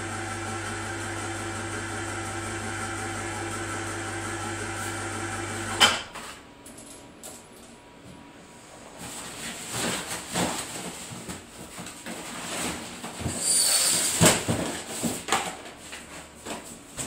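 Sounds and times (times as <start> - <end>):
packaging rustling and crinkling: 9.0 - 17.0.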